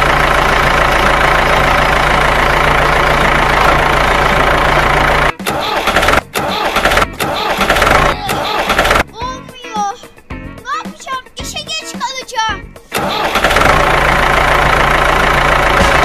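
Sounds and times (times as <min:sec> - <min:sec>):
wheel spinning in mud: 0:00.0 - 0:09.0, 0:13.0 - 0:16.0
car engine running: 0:00.0 - 0:09.1, 0:12.8 - 0:16.0
short chopped bursts of sound: 0:05.4 - 0:09.0, 0:12.9 - 0:13.8.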